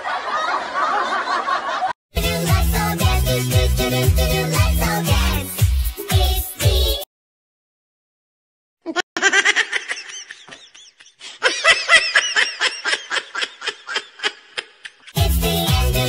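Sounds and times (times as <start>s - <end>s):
person laughing high-pitched: 8.9s - 15.2s.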